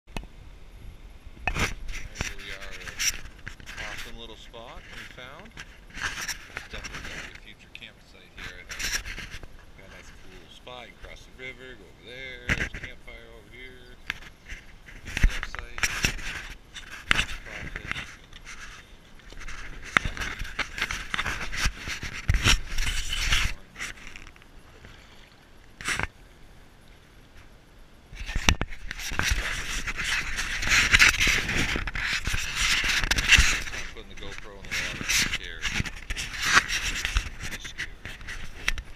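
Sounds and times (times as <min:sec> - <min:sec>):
camera handling knocks and scrapes: 0:08.4 - 0:09.6, 0:12.4 - 0:13.0, 0:14.0 - 0:24.5, 0:28.2 - 0:38.9
water splashing and sloshing: 0:14.0 - 0:38.9
water churning: 0:23.5 - 0:26.2.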